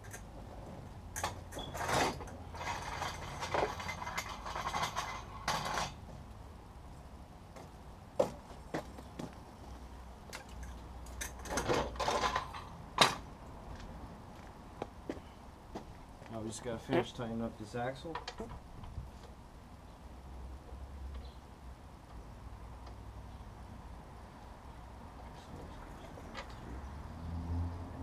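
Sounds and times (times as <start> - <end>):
metal scraping and rattling: 0.0 - 6.1, 10.4 - 13.2.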